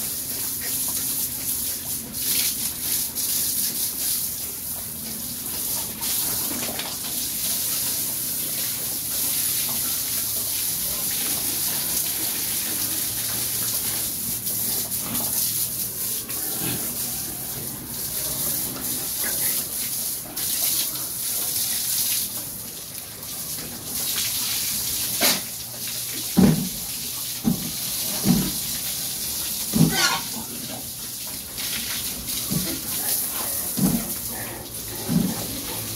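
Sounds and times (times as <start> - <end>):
hose spraying water: 0.0 - 35.9
pigs grunting: 16.1 - 19.7, 29.8 - 30.9, 32.6 - 35.9.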